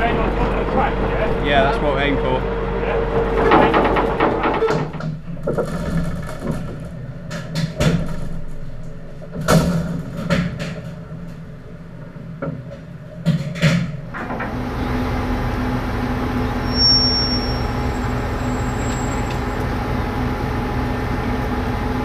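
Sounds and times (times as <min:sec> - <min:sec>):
engine humming: 0:00.0 - 0:22.0
metal clanks and knocks: 0:03.1 - 0:11.5.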